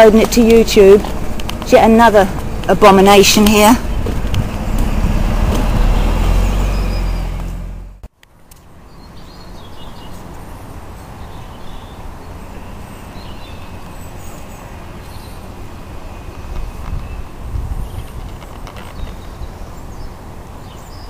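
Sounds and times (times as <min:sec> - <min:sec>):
diesel lorry engine rumbling: 0:00.0 - 0:08.1
distant traffic: 0:00.0 - 0:21.0.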